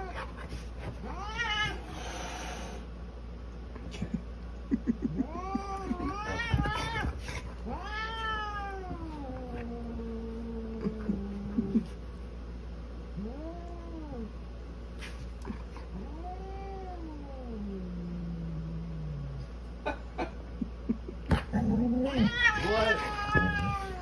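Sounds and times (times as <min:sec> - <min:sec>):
cat yowling angrily: 0:22.0 - 0:24.0.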